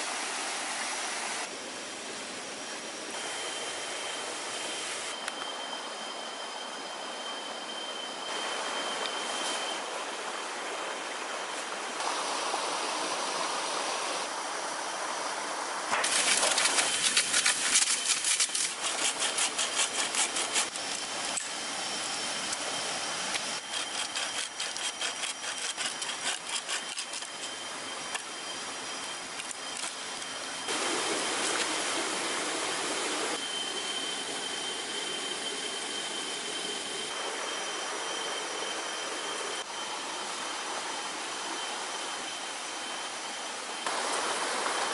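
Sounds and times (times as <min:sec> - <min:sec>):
saw cutting through branch: 0:16.0 - 0:21.6, 0:23.3 - 0:28.3
high-pitched drone: 0:18.4 - 0:44.0.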